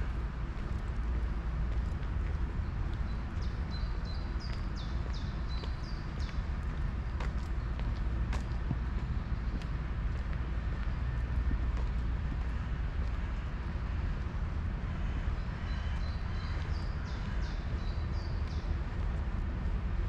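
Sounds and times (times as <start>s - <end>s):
steady low rumble: 0.0s - 20.0s.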